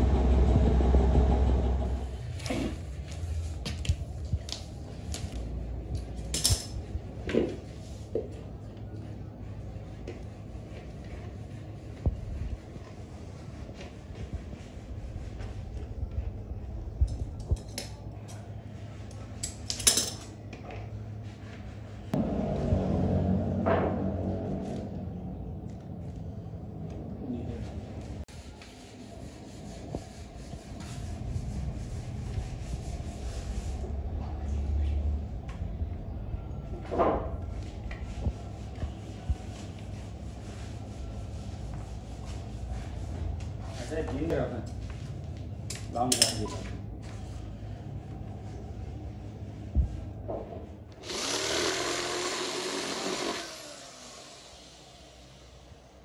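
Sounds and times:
electric drill boring: 0:51.0 - 0:55.3.

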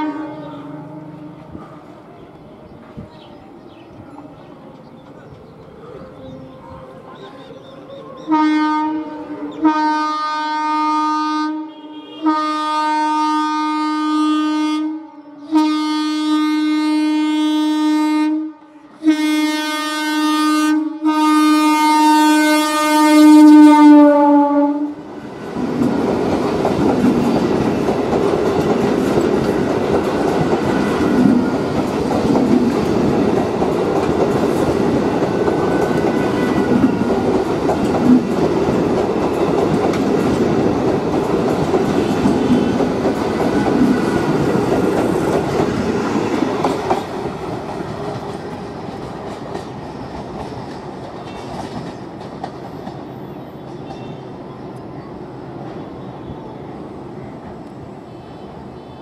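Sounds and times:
train horn blasts: 0:00.0 - 0:01.7, 0:08.2 - 0:25.0, 0:30.6 - 0:31.5, 0:35.4 - 0:37.3, 0:41.9 - 0:43.0
train wheels rushing and rattling: 0:25.1 - 0:54.3.

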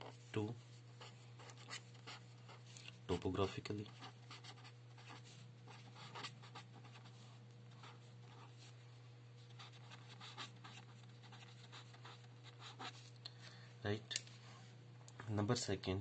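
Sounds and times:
steady low hum: 0:00.0 - 0:16.0
marker scratching on paper: 0:01.0 - 0:02.6, 0:03.9 - 0:08.7, 0:09.5 - 0:13.0.

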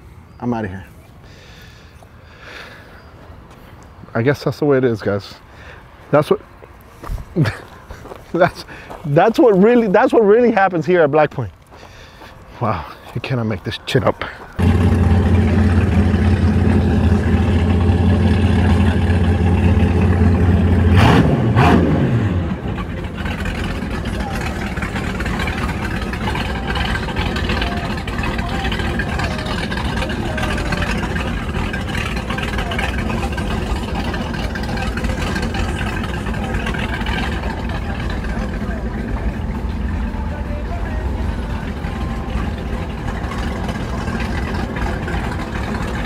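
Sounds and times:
outboard engines droning: 0:11.6 - 0:46.0.

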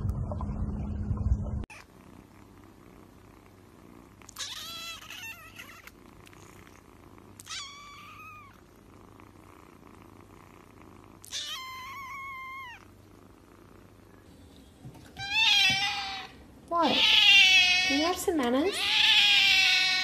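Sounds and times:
kittens meowing: 0:04.3 - 0:05.9, 0:07.4 - 0:08.6, 0:11.2 - 0:12.9, 0:15.1 - 0:20.0.

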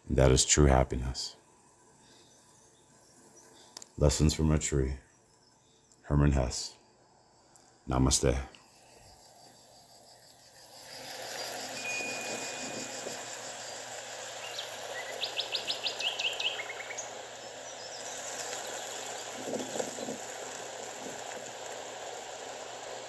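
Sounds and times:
steady rushing hiss: 0:00.0 - 0:23.0
sharp high chirps: 0:08.8 - 0:18.9
thin held whistle: 0:11.6 - 0:13.2
birds calling: 0:11.7 - 0:20.6.

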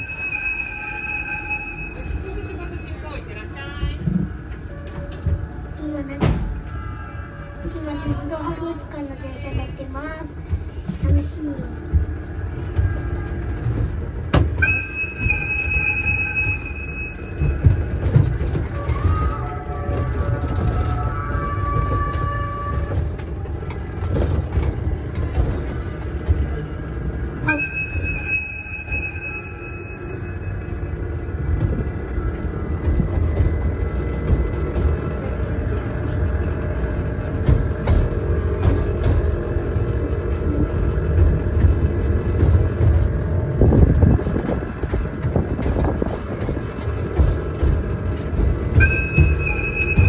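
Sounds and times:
high steady squeal: 0:00.0 - 0:03.6, 0:14.6 - 0:23.3, 0:27.3 - 0:37.2, 0:48.1 - 0:50.0
ride-on train rumbling: 0:00.0 - 0:50.0
rattling clicks: 0:16.5 - 0:28.3, 0:30.9 - 0:50.0
light clatter from cab: 0:17.1 - 0:28.4, 0:31.2 - 0:50.0.

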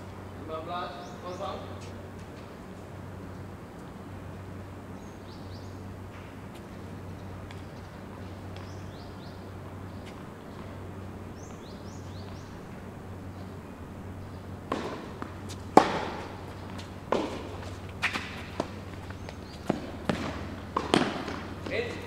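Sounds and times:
steady low hum: 0:00.0 - 0:22.0
tennis ball pops: 0:14.7 - 0:16.3, 0:19.7 - 0:21.5.

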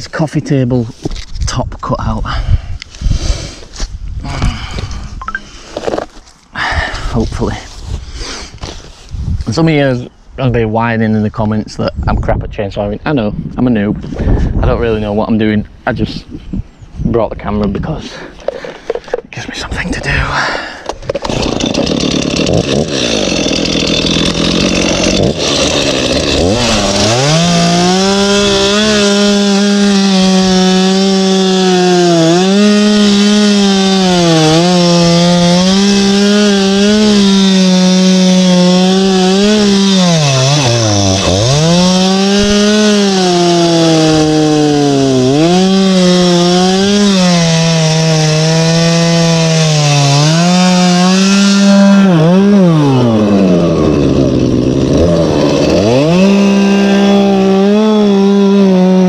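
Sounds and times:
chainsaw cutting log: 0:20.8 - 0:59.0.

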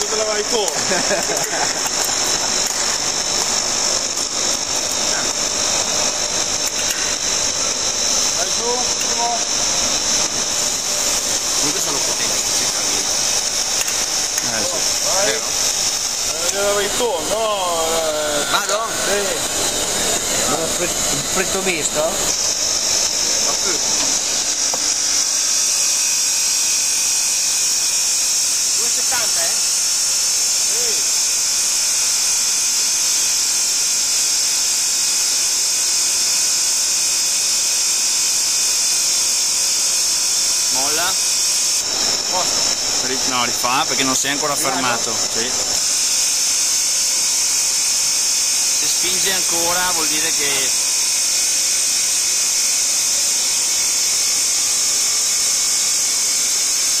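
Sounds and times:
hydraulic pump hissing: 0:00.0 - 0:26.9, 0:40.6 - 0:52.4.

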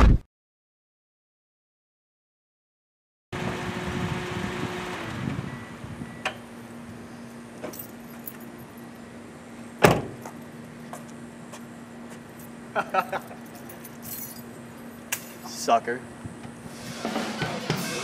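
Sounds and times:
outdoor low hum: 0:03.4 - 0:17.9
keys jingling: 0:07.7 - 0:08.9, 0:12.3 - 0:15.4.

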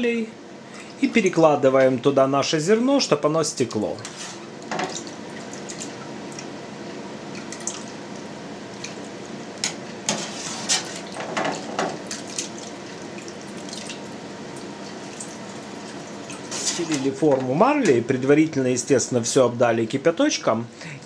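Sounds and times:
whey trickling and dripping: 0:12.1 - 0:17.2.

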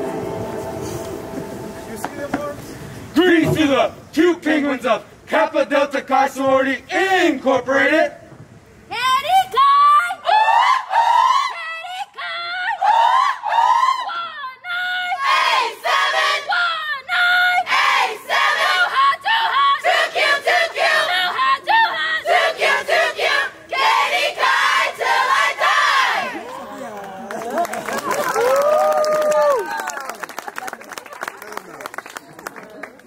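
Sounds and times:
women chanting and yelling: 0:08.9 - 0:26.4.

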